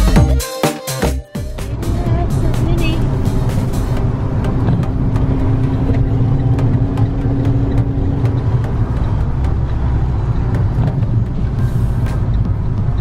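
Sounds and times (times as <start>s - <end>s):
low rumble of engine and tyres: 1.5s - 13.0s
sharp ticks: 2.6s - 13.0s.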